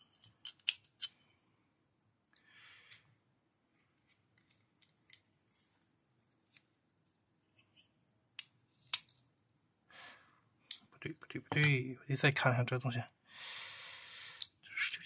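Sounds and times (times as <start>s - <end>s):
metal parts clicking: 0.1s - 1.2s.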